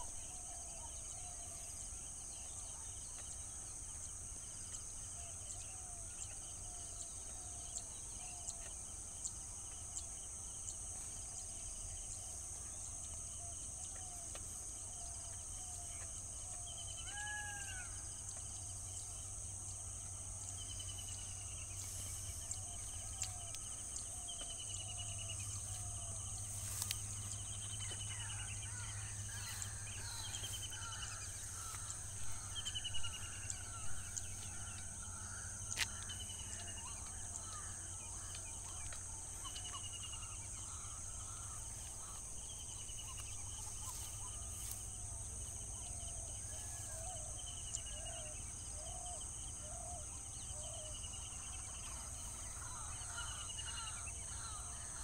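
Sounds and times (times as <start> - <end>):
high insect drone: 0.0 - 55.0
steady low hum: 18.1 - 55.0.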